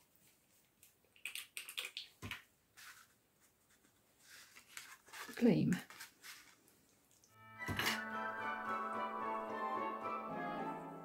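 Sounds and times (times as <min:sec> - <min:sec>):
paper rustling and scratching: 0:02.8 - 0:06.6.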